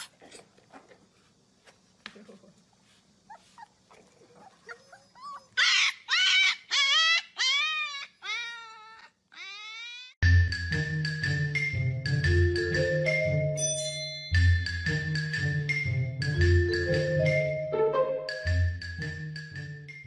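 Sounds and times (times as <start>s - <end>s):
puppies whining and howling: 3.3s - 10.2s
marimba tune: 10.5s - 19.1s.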